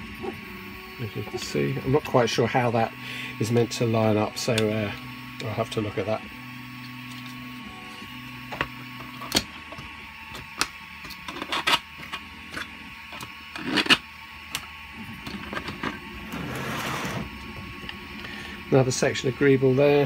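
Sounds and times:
plastic scraping on mat: 0:15.4 - 0:17.3.

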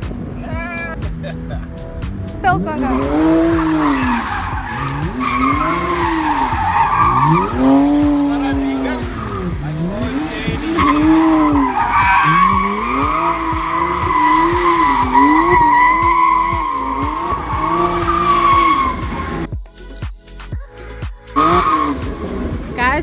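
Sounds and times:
car engine revving: 0:00.0 - 0:19.5, 0:21.3 - 0:23.0
tyres squealing: 0:02.8 - 0:19.5.

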